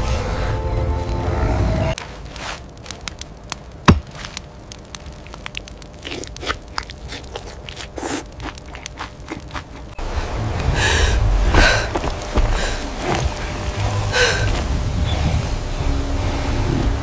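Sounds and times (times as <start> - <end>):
wet chewing of raw meat: 5.5 - 10.0
heavy breaths: 10.0 - 13.3, 14.0 - 15.4
deep low rumble: 10.0 - 17.0.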